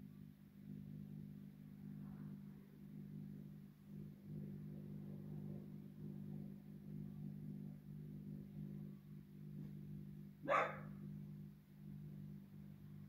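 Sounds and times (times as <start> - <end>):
steady low hum: 0.0 - 13.0
dog bark: 10.4 - 10.9.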